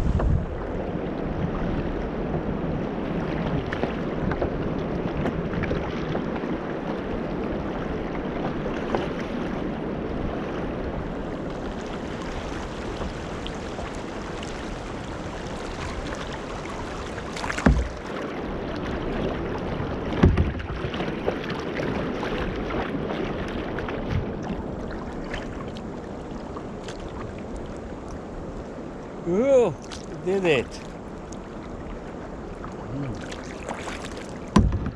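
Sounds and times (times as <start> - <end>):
river water rushing and splashing: 0.0 - 34.9.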